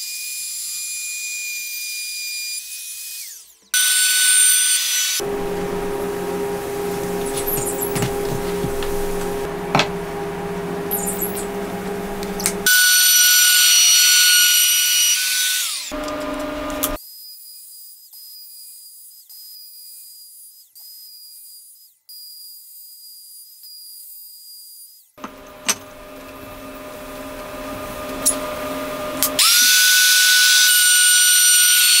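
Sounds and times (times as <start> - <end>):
router motor whining: 1.6 - 17.0, 25.2 - 32.0.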